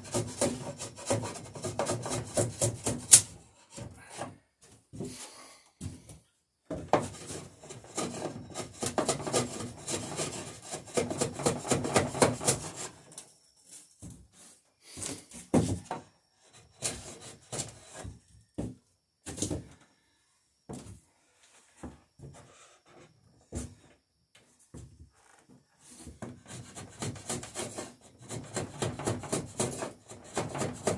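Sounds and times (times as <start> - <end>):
hand tool rasping wood: 0.0 - 4.3, 7.0 - 13.0, 25.9 - 30.9.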